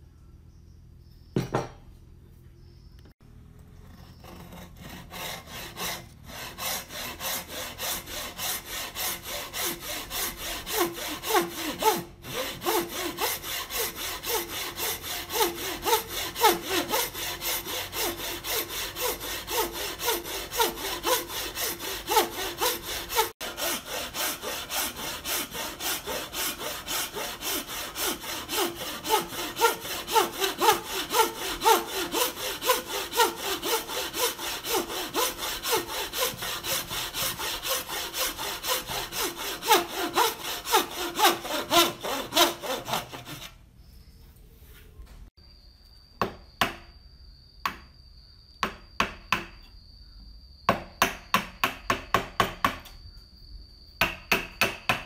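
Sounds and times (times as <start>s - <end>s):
hand saw cutting wood: 3.8s - 43.6s.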